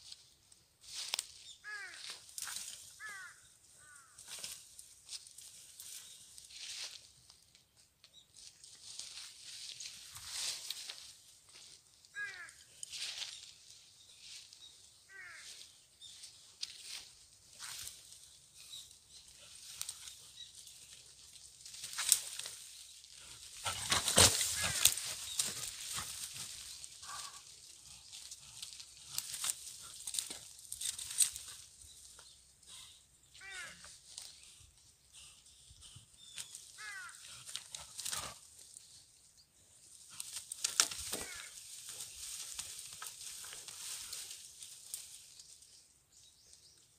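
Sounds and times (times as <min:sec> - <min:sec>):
rustling and crackling leaves: 0:00.0 - 0:07.6, 0:08.4 - 0:32.3, 0:36.4 - 0:46.0
animal thrashing through dry leaves: 0:23.6 - 0:27.2, 0:40.6 - 0:44.2
short falling animal calls: 0:23.8 - 0:25.2.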